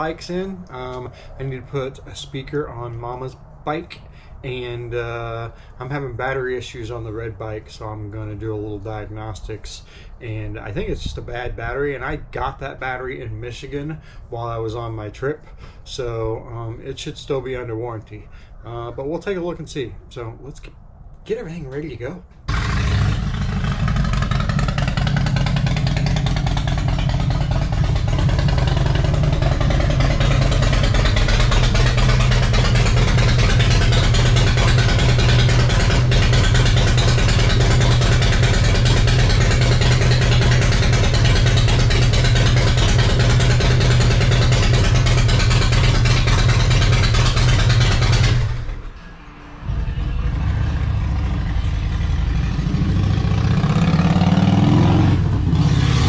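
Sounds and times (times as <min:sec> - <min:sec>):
motorcycle engine running: 0:22.5 - 0:56.0.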